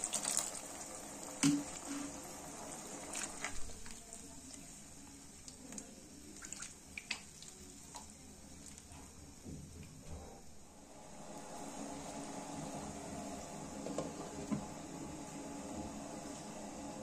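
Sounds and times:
spatula stirring watery gravy: 0.0s - 8.9s
water pouring into a pan: 0.0s - 8.9s.

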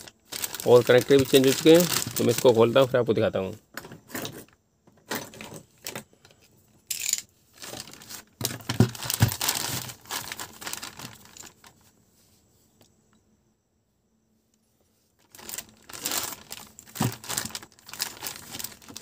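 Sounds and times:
plastic bag crinkling: 0.0s - 2.9s, 7.6s - 11.8s, 15.2s - 19.0s.

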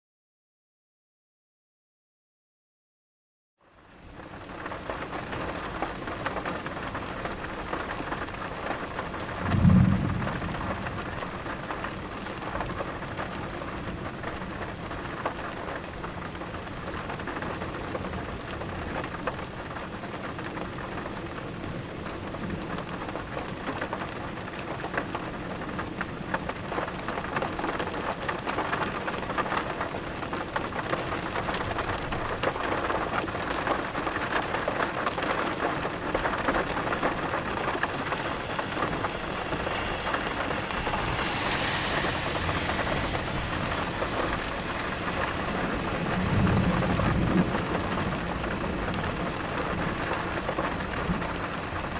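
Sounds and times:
heavy rain: 3.6s - 51.9s
thunder rumbling: 5.1s - 14.8s, 27.2s - 51.9s.

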